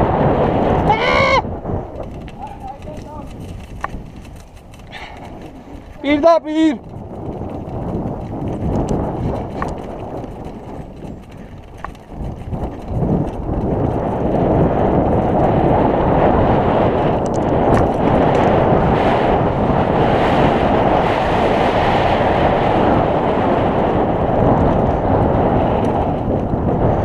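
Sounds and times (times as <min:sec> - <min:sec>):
wind buffeting microphone: 0:00.0 - 0:27.0
tyres rumbling on dirt: 0:01.6 - 0:20.9.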